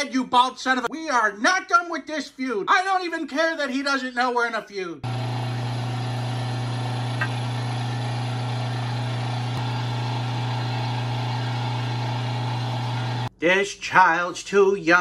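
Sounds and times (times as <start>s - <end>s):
electric meat grinder motor humming: 5.0s - 13.3s.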